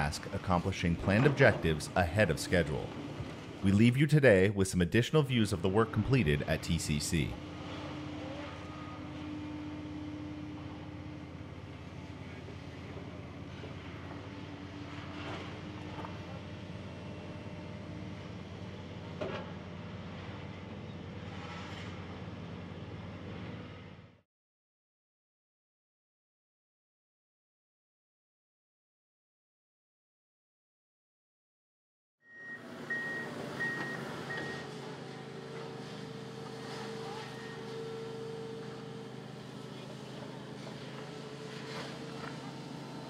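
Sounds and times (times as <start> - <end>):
heavy machinery rumbling: 0.0 - 23.9, 32.6 - 43.0
excavator diesel engines running: 0.0 - 24.1, 32.3 - 43.0
faint backup alarm beep: 32.3 - 34.7.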